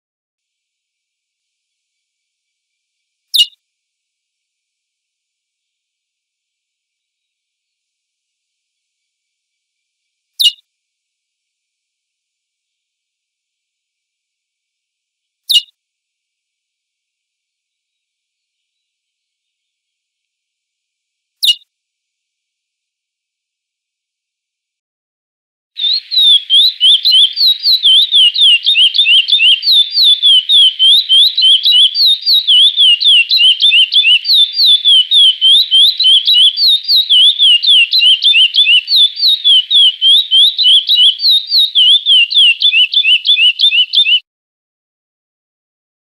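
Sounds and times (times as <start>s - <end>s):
finch singing whistled notes: 3.4s - 3.6s, 10.4s - 10.6s, 15.5s - 15.7s, 21.4s - 21.6s, 25.8s - 44.2s.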